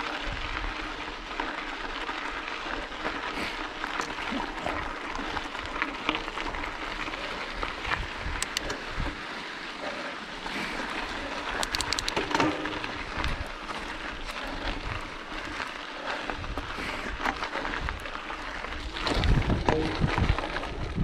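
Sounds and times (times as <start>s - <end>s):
bike rattling and clicking: 0.0s - 21.0s
tyres crunching on gravel: 0.0s - 21.0s.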